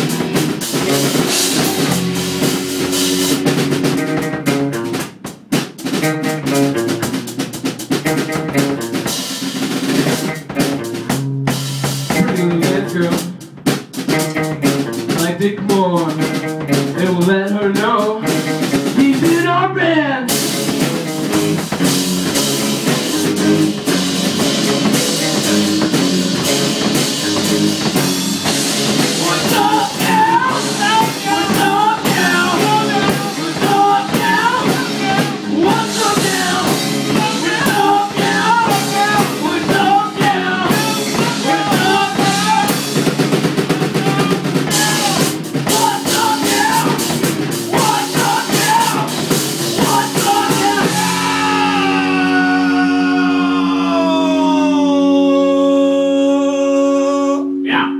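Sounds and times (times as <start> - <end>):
sliding guitar notes: 0.0 - 5.0, 19.7 - 57.9
rock band playing live: 0.0 - 55.8
higher melody line: 0.3 - 5.0, 56.9 - 57.9.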